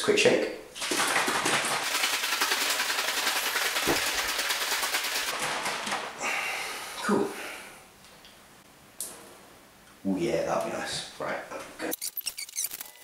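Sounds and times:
liquid sloshing in shaken bottle: 0.8s - 5.3s.

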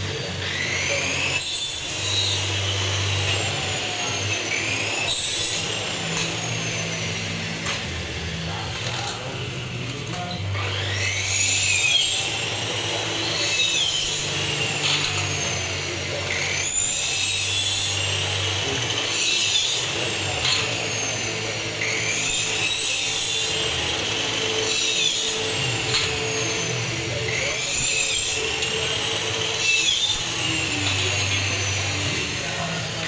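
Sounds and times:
electric power saw whine: 0.0s - 33.0s.

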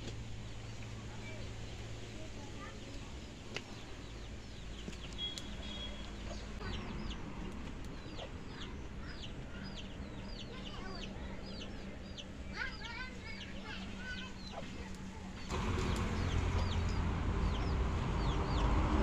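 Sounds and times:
bird peeping: 4.1s - 13.5s.

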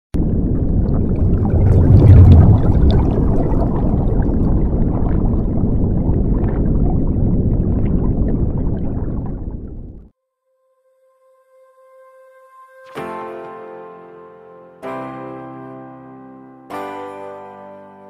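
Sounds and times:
underwater water wash: 0.2s - 10.1s.

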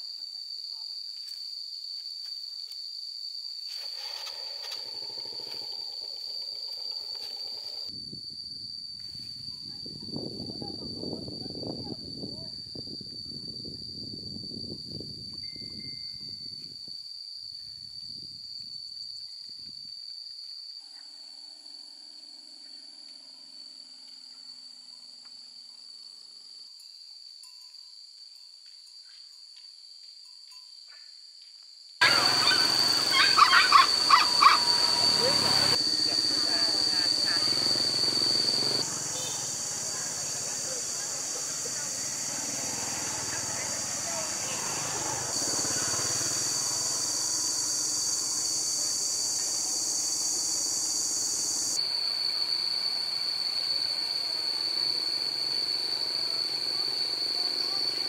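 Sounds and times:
high-pitched insect drone: 0.0s - 58.0s
short chirping calls: 32.0s - 39.5s
rushing outdoor background: 32.0s - 51.7s
high hiss: 32.0s - 58.0s.

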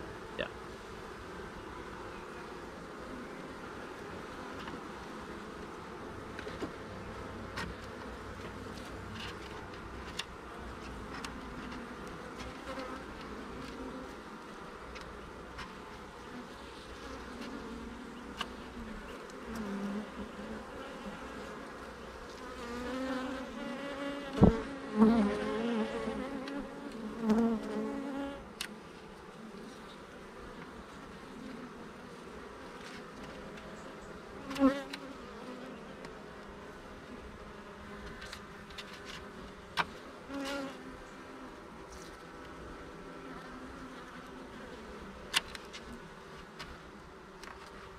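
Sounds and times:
bees buzzing: 9.8s - 47.9s.

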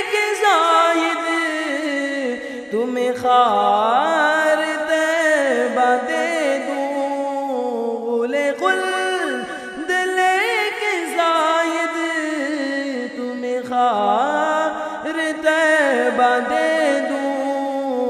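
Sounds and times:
man singing: 0.0s - 18.0s.

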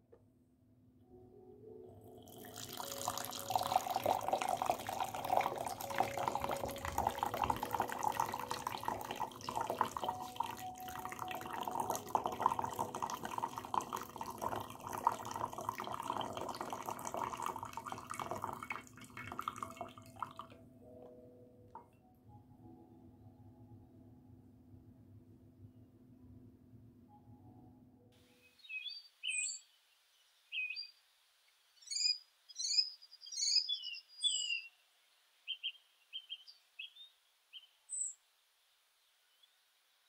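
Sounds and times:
coffee pouring into glass: 2.2s - 20.6s.

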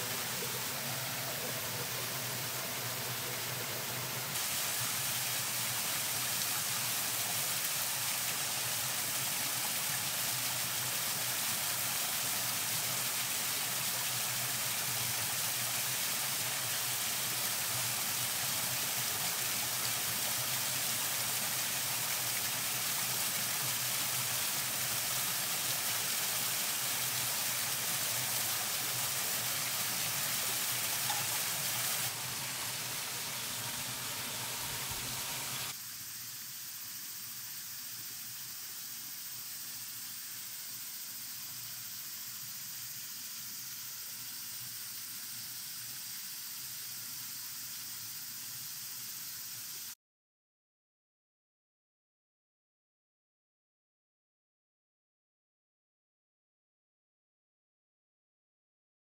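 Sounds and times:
waterfall splashing over rocks: 0.0s - 35.8s.

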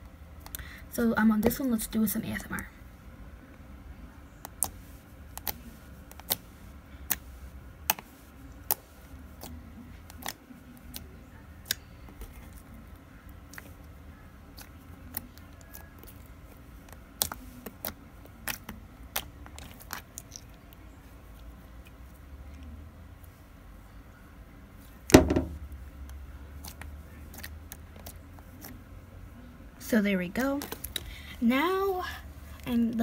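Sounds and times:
slime squishing with clicks and pops: 4.4s - 22.6s.

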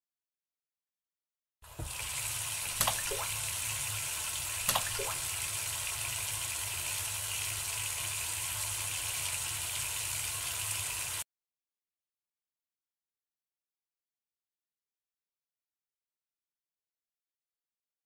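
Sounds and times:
tap running into sink: 1.7s - 3.4s, 4.6s - 5.4s
water splashes: 1.7s - 6.0s.

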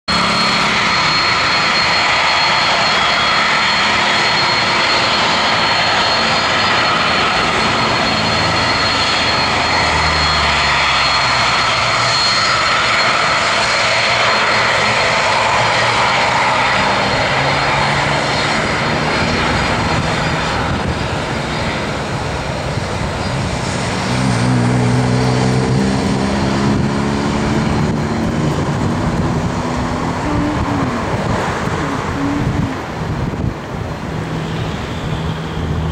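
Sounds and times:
high whine: 0.1s - 35.9s
jet engines running: 0.1s - 35.9s
low droning tones: 15.6s - 35.9s.

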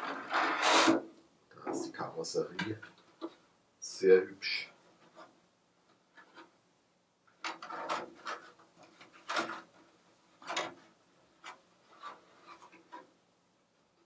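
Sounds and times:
plastic shell rubbing and knocking: 7.3s - 13.2s.

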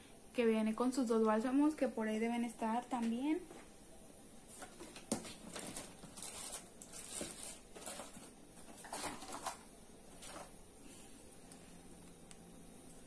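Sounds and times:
plastic bottles rustling and clattering: 4.5s - 10.6s.

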